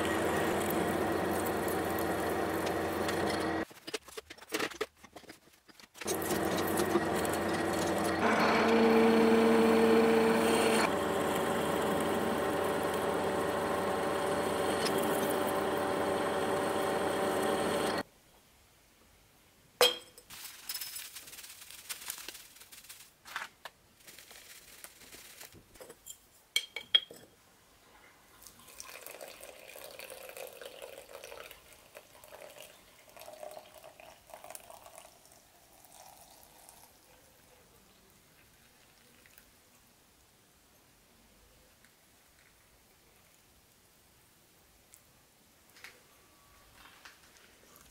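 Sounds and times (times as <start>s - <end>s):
milling machine drilling steel: 0.0s - 3.6s, 6.1s - 18.0s
water pouring into cup: 0.0s - 3.6s, 28.4s - 37.1s, 38.4s - 39.4s
dry leaves poured into cup: 20.3s - 23.2s, 24.0s - 25.5s, 28.7s - 35.1s.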